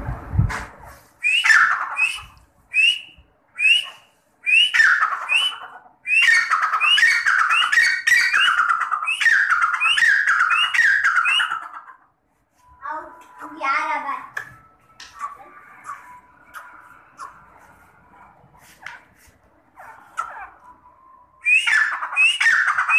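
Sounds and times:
partridge calling: 1.2 - 3.0, 3.6 - 12.0, 21.4 - 22.9.

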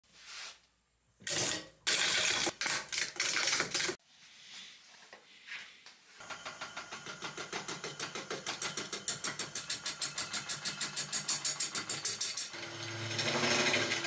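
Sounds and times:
wood lathe whining: 8.8 - 14.0.

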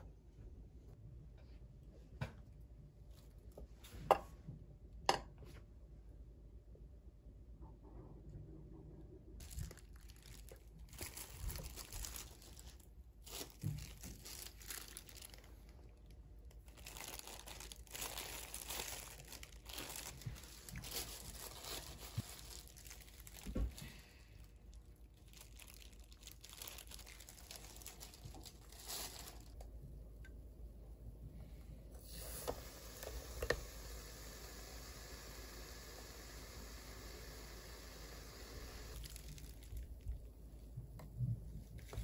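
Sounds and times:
plastic glove crinkling: 9.4 - 29.8, 38.9 - 40.8, 41.5 - 42.0.

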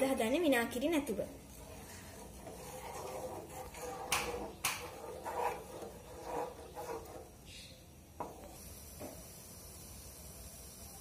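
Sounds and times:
wooden spatula scraping a pan: 1.0 - 7.6, 8.2 - 8.6.

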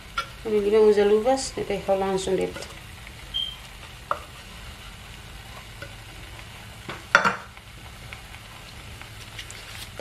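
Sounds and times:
filling sizzling in a frying pan: 0.0 - 10.0.

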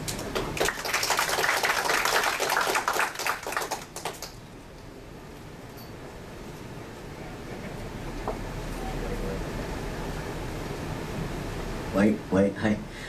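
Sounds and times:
small audience clapping: 0.0 - 4.5.

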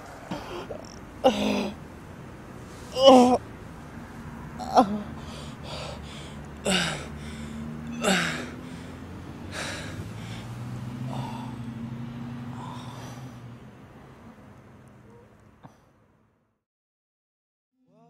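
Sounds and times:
person breathing heavily: 0.3 - 1.8, 4.6 - 13.5.

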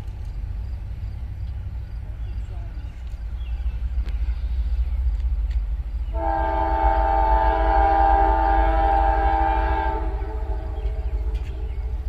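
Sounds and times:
low train rumble: 0.0 - 12.0
locomotive air horn blast: 6.1 - 12.0.

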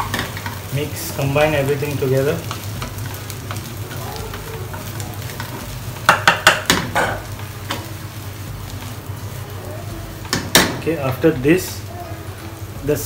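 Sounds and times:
rice sizzling in a frying pan: 0.0 - 13.0
spatula knocking and scraping pan: 5.4 - 7.8.

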